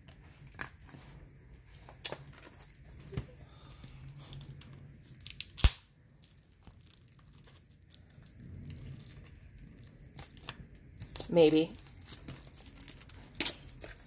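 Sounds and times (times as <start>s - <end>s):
plastic wrapping crinkling: 0.0s - 14.0s
plastic wrap tearing: 4.3s - 14.0s.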